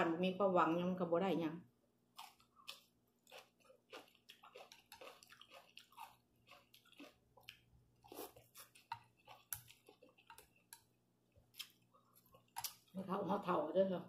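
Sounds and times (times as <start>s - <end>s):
chewing and wet smacking: 2.2s - 13.0s.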